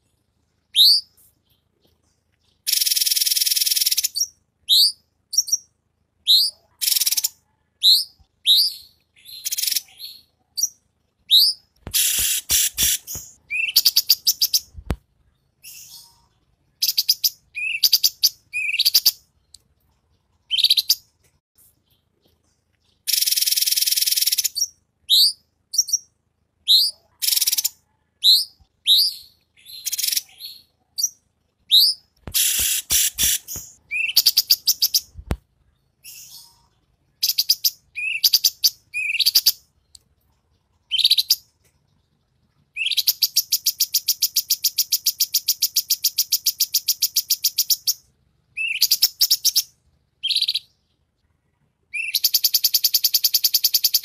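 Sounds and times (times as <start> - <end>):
songbird whistled notes: 0.7 - 1.1, 6.3 - 14.8, 31.7 - 35.1
rapid bird chattering: 11.4 - 14.8, 31.8 - 35.3
bird clicks: 11.8 - 13.4, 32.2 - 33.8.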